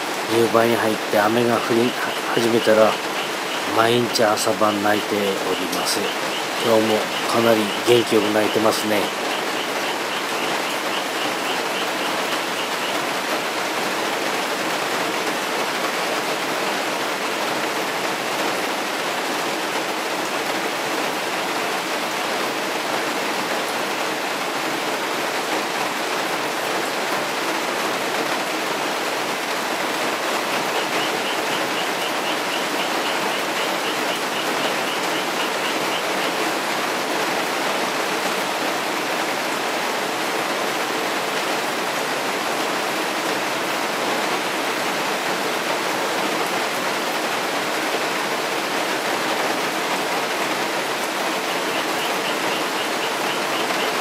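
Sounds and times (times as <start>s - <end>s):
heavy rain pouring: 0.0s - 54.0s
frog trilling: 0.7s - 13.1s, 30.7s - 36.5s, 51.3s - 54.0s.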